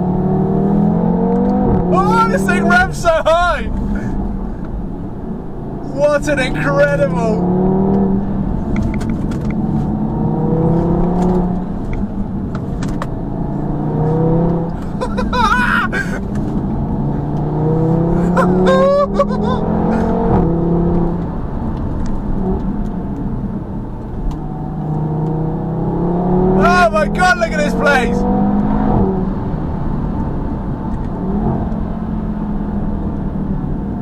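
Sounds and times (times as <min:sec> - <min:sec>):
car engine accelerating hard: 0:00.0 - 0:34.0
exhaust cracks: 0:01.3 - 0:25.4.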